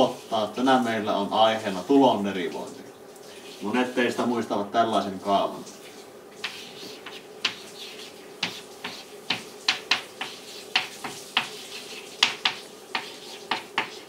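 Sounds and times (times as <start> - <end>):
chalk tapping and scraping on chalkboard: 5.8 - 14.0.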